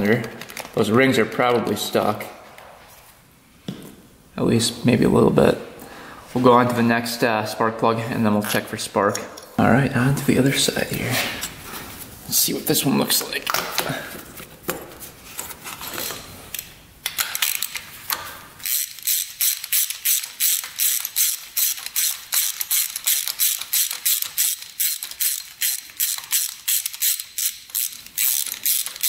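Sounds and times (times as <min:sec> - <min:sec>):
socket ratchet clicking: 0:17.0 - 0:29.0.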